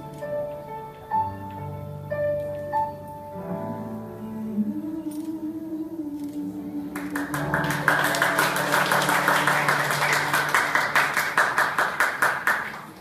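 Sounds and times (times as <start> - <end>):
audience clapping: 7.0 - 13.0.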